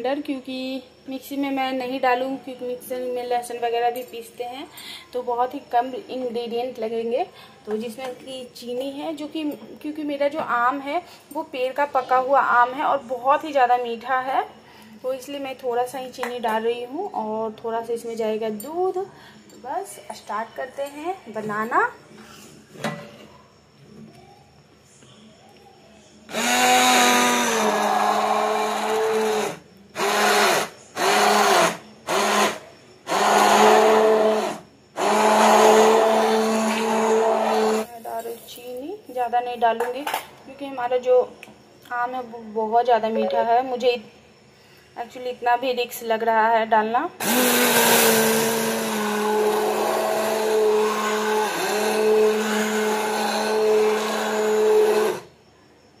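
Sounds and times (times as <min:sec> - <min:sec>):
electric hand blender running: 0:26.3 - 0:37.9, 0:47.2 - 0:55.3.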